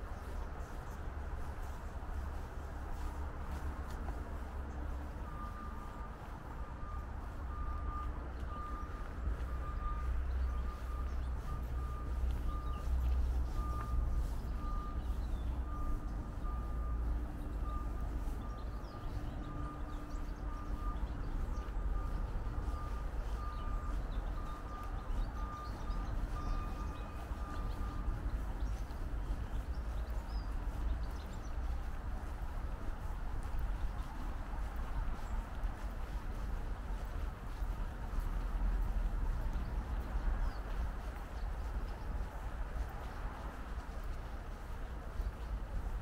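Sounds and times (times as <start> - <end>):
steady low rumble: 0.0 - 46.0
reversing alarm beeping: 4.9 - 28.2.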